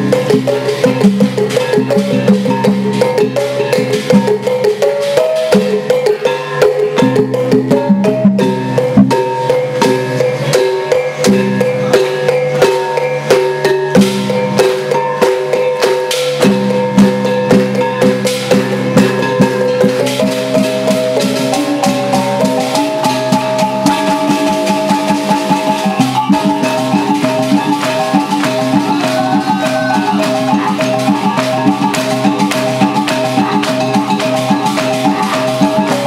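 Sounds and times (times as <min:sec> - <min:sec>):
bamboo poles clapping: 0:20.2 - 0:36.0
wind instrument chords: 0:21.6 - 0:36.0.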